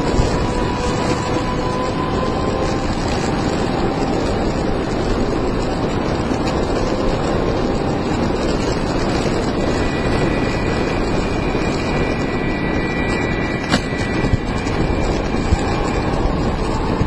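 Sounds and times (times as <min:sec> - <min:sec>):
thin high whine: 0:00.0 - 0:17.0
wheels rumbling on asphalt: 0:00.0 - 0:17.0
wind on microphone: 0:00.0 - 0:17.0.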